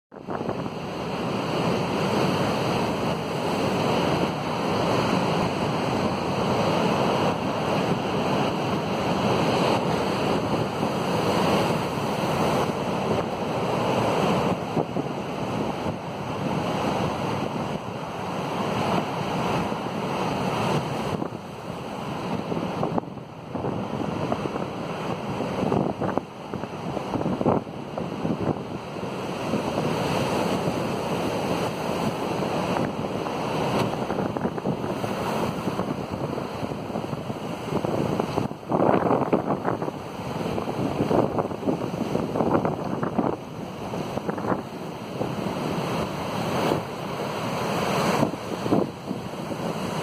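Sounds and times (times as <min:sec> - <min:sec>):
waves breaking on rocky shore: 0:00.1 - 0:50.0
wind gusts on microphone: 0:00.1 - 0:50.0.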